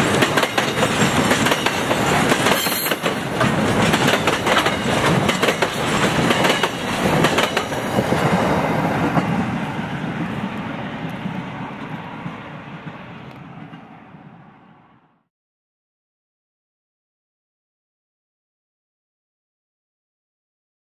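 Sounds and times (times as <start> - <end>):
train wheels clattering over rails: 0.0 - 9.8.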